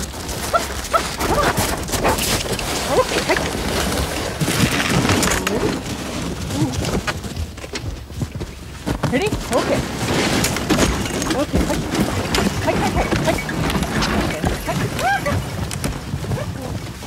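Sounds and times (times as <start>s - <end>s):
rustling noise: 0.0s - 17.0s
sled dogs yelping and barking: 0.2s - 7.2s, 10.4s - 17.0s.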